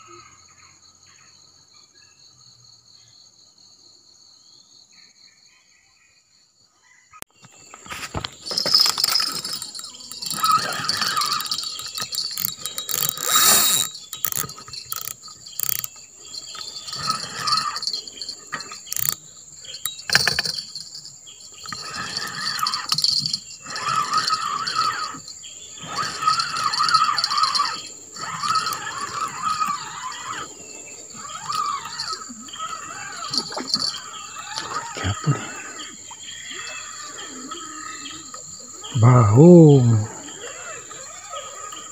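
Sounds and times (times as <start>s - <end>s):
high buzz of insects: 7.4s - 41.9s
fishing reel cranking: 8.2s - 35.1s.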